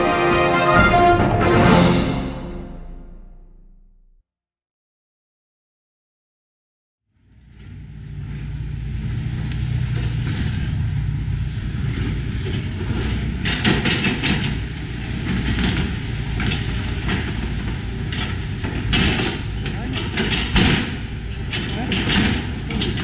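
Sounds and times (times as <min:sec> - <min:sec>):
excavator diesel engine: 0:07.1 - 0:23.0.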